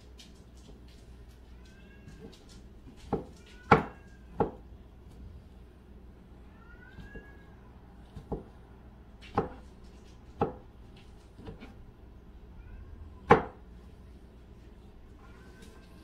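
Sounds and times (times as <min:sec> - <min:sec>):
knife knocking on cutting board: 0:03.1 - 0:04.6.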